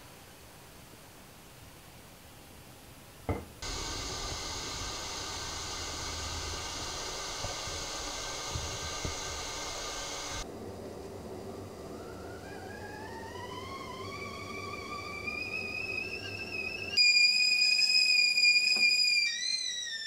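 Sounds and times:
steady hiss of stove under kettle: 0.0s - 20.0s.

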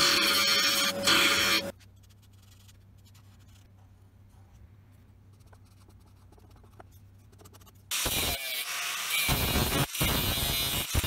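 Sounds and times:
marker scratching on steel: 0.6s - 3.7s, 5.3s - 7.9s.

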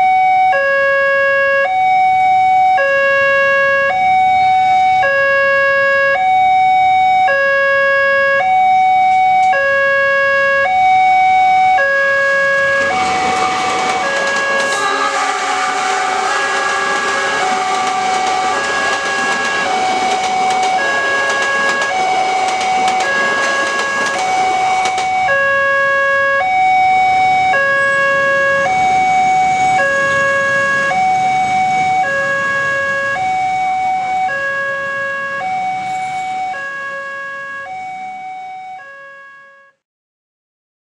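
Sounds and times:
level crossing two-tone alarm: 0.0s - 39.8s
train coaches passing: 12.2s - 25.6s, 26.8s - 37.0s.

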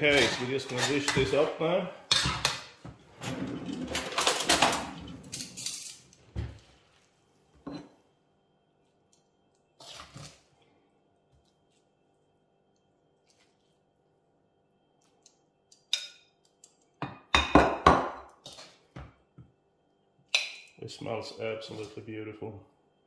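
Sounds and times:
utensil scraping in metal wok: 0.0s - 1.6s.

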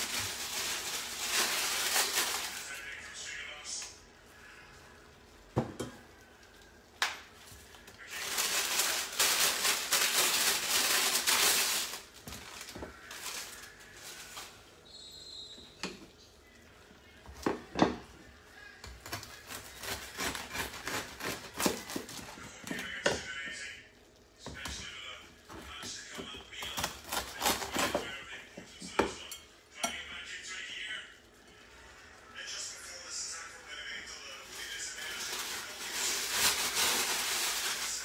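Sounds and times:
bread knife sawing through loaf: 19.5s - 22.0s.

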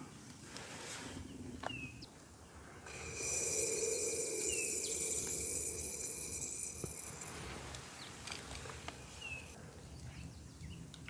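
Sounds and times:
bird chirp: 1.2s - 11.0s
high hiss with ringing tone: 2.9s - 8.2s.

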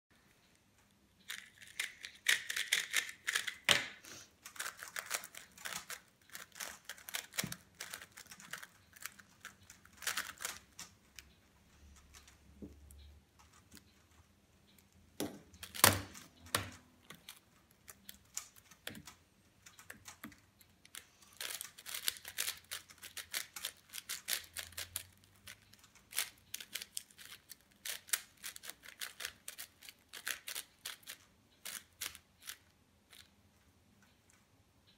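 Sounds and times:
plastic puzzle cube clicks and rattles: 0.8s - 33.4s.

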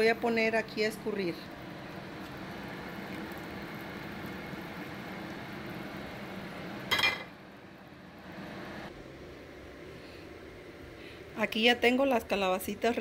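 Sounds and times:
water boiling in a pot: 0.0s - 8.9s
metallic clink on pot: 6.9s - 7.3s.

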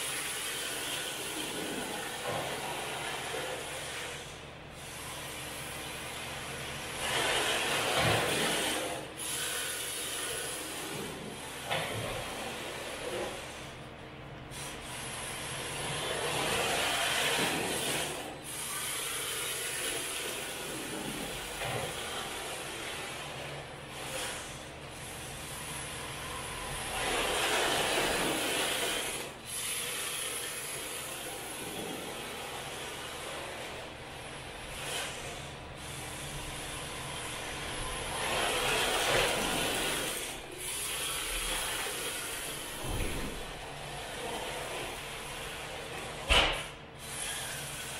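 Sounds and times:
rc car drivetrain running: 15.7s - 33.9s, 47.0s - 47.9s.

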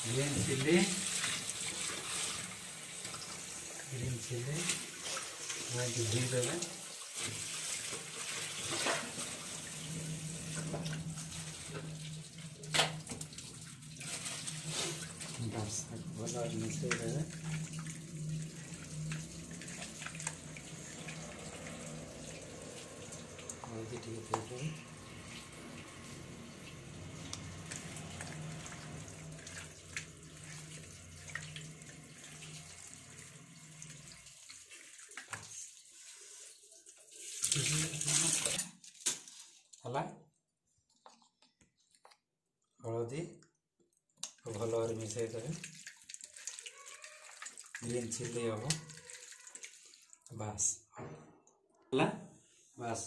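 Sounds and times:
water splashing in metal sink: 0.0s - 39.8s, 44.1s - 50.6s
small clicks and splashes: 16.6s - 24.6s, 27.0s - 32.8s, 33.8s - 35.7s, 36.9s - 39.9s, 40.9s - 50.4s.

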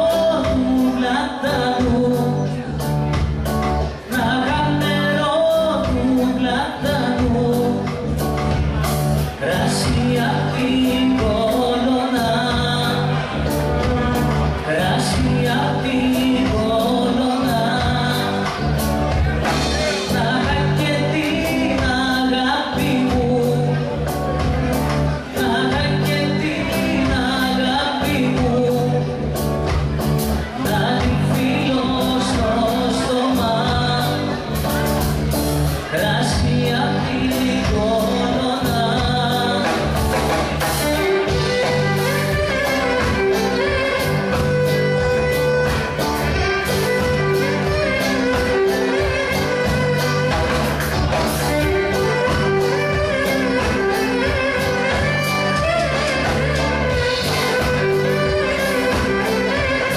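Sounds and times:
guitar: 0.0s - 59.9s
live band music: 0.0s - 59.9s
person singing: 0.0s - 59.9s
drum beat: 37.4s - 59.9s.

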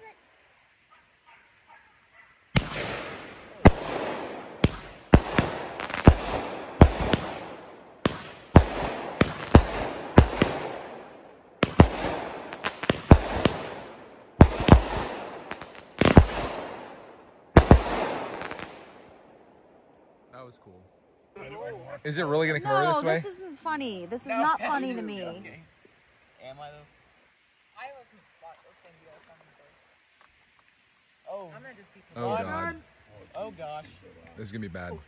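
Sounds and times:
fireworks bangs: 2.5s - 19.2s.

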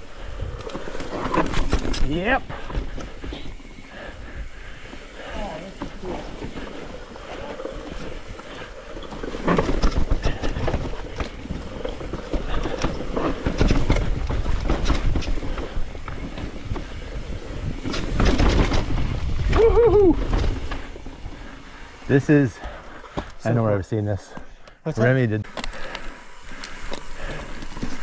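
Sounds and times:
bike rattling over bumps: 0.0s - 23.6s, 25.5s - 28.0s.

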